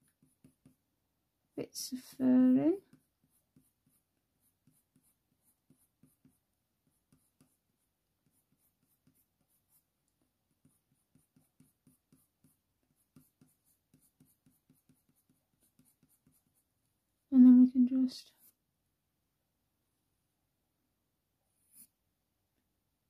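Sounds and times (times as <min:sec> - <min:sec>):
pencil scratching on paper: 0:00.0 - 0:00.8, 0:02.7 - 0:16.7, 0:21.6 - 0:22.0.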